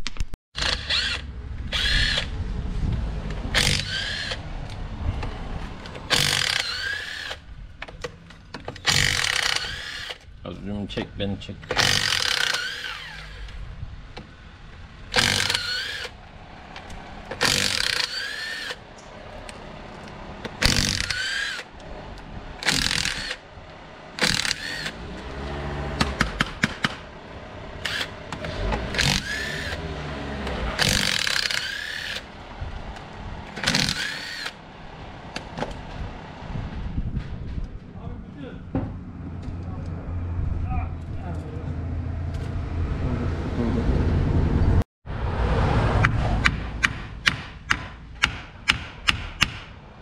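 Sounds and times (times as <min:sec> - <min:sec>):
power tool motor whine: 0:00.6 - 0:02.3, 0:03.5 - 0:04.4, 0:06.1 - 0:07.4, 0:08.8 - 0:10.2, 0:11.8 - 0:13.5, 0:15.1 - 0:16.2, 0:17.3 - 0:18.8, 0:24.2 - 0:26.0, 0:27.8 - 0:32.3, 0:33.6 - 0:34.6.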